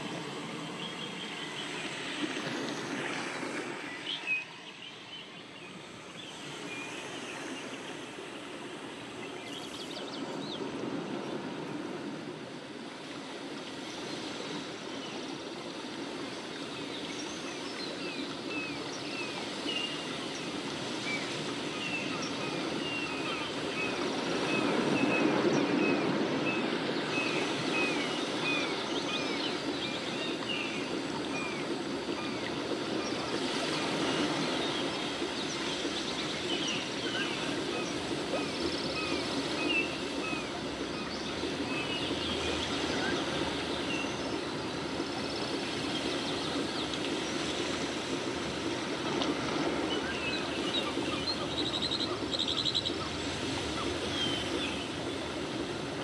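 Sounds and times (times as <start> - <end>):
steady rushing noise: 0.0 - 56.0
small birds chirping: 49.8 - 55.2.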